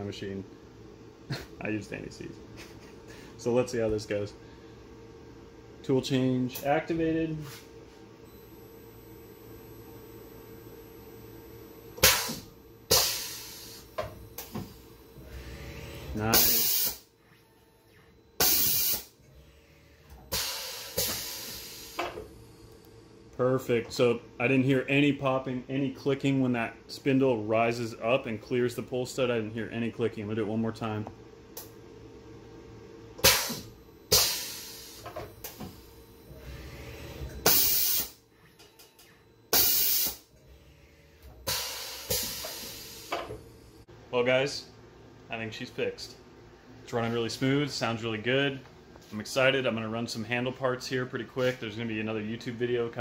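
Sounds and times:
compressed air hissing: 12.0 - 13.9, 20.3 - 22.1, 41.4 - 43.2
low motor hum: 13.5 - 18.4
sharp hisses of air: 41.5 - 43.2.

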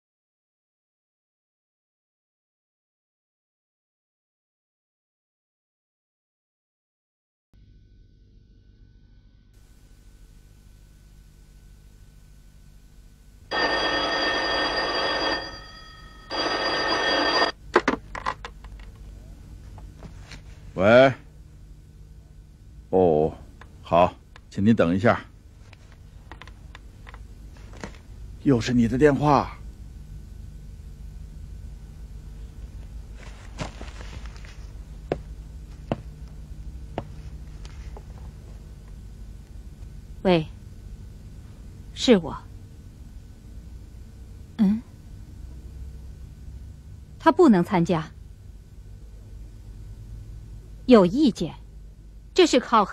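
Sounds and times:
telephone ringing: 13.5 - 17.6
footsteps on hard floor: 19.6 - 20.6, 33.2 - 36.1, 36.9 - 38.6
low hum: 25.2 - 52.8
rustling and knocks: 33.1 - 36.1.

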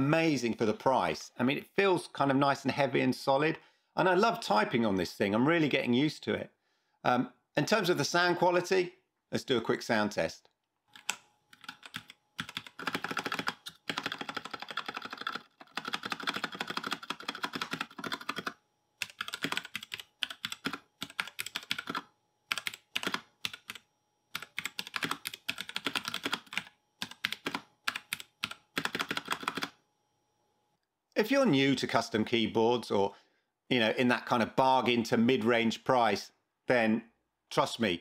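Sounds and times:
mechanical keyboard typing: 10.9 - 29.8.

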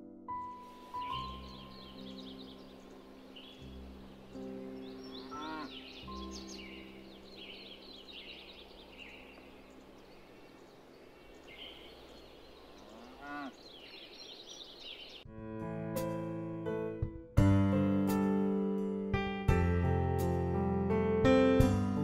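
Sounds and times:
piano music: 0.0 - 9.9, 15.2 - 22.0
birds chirping: 0.7 - 15.3
cow mooing: 5.2 - 5.8, 12.8 - 13.6.

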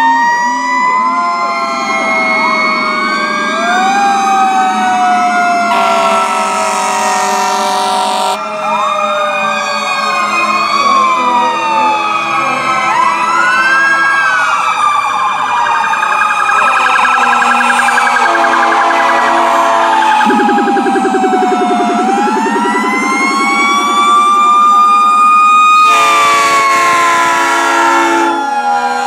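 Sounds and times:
fast warbling siren yelp: 0.0 - 8.5, 9.8 - 29.0
emergency vehicle sirens wailing: 0.0 - 29.0
vehicle horn blast: 5.7 - 8.4, 25.9 - 28.3.

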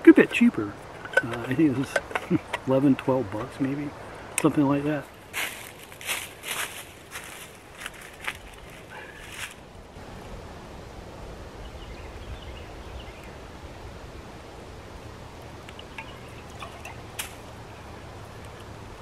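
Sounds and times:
bird chirps: 15.7 - 17.1.

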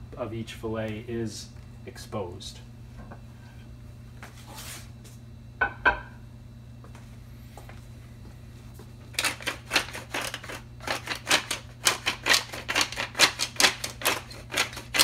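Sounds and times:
wooden grinder mill grinding: 9.1 - 15.0.

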